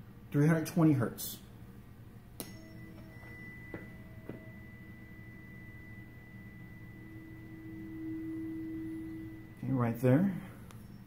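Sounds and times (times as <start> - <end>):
tuning fork ringing: 2.2 - 11.0.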